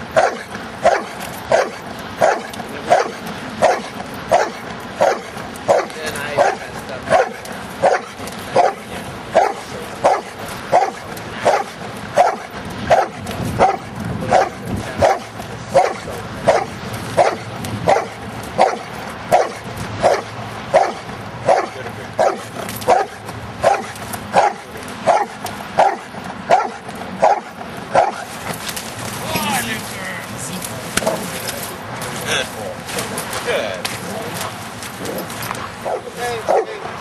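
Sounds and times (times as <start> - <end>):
dog barking: 0.1 - 28.3, 35.8 - 36.8.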